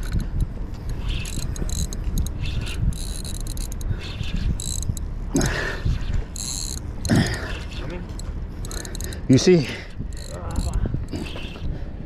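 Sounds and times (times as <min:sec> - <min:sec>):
fishing reel buzzing: 0:00.0 - 0:05.1, 0:05.9 - 0:07.2, 0:08.2 - 0:09.3, 0:10.1 - 0:11.6.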